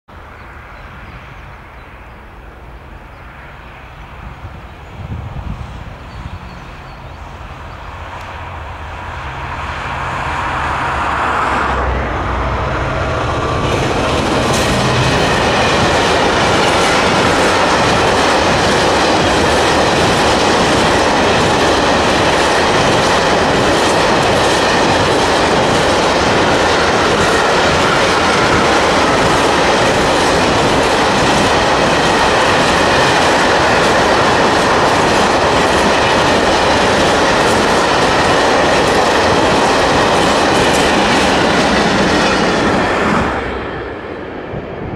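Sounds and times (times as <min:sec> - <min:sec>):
diesel locomotive passing: 0:00.1 - 0:44.9
train wheels clickety-clack: 0:12.8 - 0:43.8.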